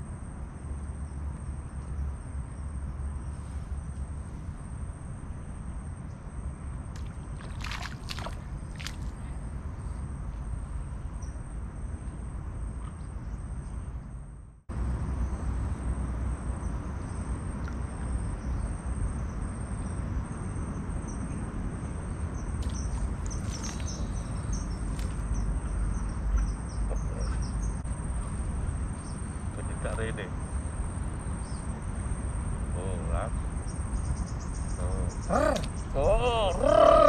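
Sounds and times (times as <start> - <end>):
high chirping calls: 22.6 - 30.2, 32.7 - 37.0.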